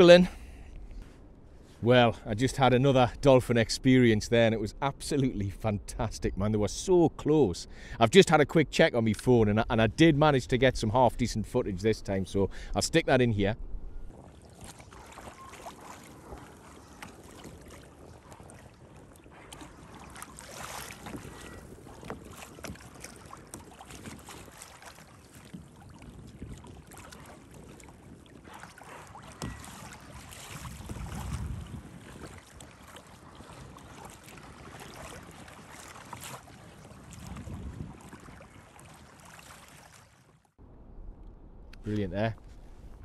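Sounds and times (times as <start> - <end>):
wind buffeting microphone: 13.6 - 39.3
waves lapping against kayak hull: 14.0 - 40.6.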